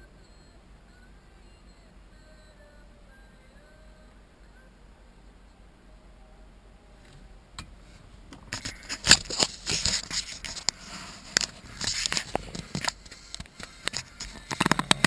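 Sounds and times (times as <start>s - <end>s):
phone handling rustling: 8.3s - 15.0s.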